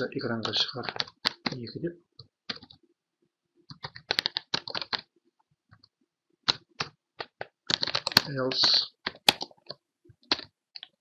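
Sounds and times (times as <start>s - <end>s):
computer keyboard typing: 0.4s - 1.6s, 2.5s - 2.8s, 3.7s - 5.1s, 6.5s - 11.0s.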